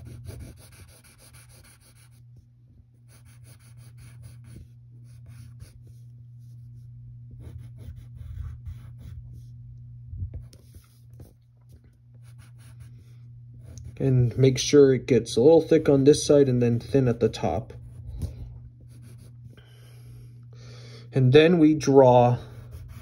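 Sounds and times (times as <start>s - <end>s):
pencil scratching on paper: 0.0s - 2.2s, 3.1s - 6.8s, 7.4s - 9.5s, 12.2s - 14.2s, 15.4s - 18.2s, 18.8s - 19.6s, 22.4s - 23.0s
steady low hum: 0.0s - 23.0s.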